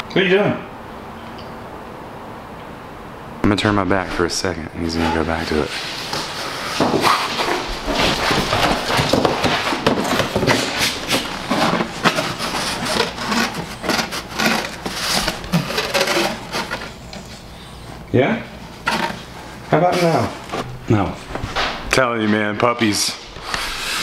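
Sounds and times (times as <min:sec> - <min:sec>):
puppy scratching cardboard box: 0:05.6 - 0:17.3.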